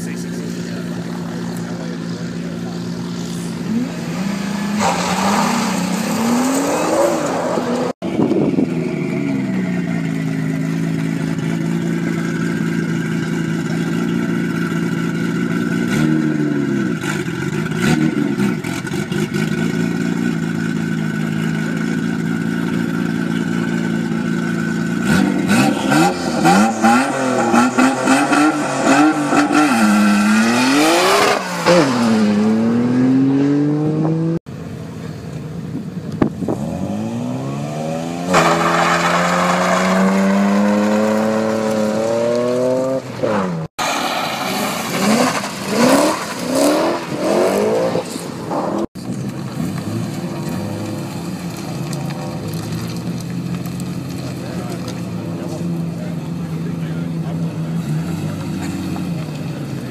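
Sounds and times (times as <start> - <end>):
turbocharged engine idling: 0.0 - 4.0, 8.1 - 25.1
car engine revving: 0.0 - 34.8, 36.1 - 59.9
engine crackles: 0.0 - 59.9.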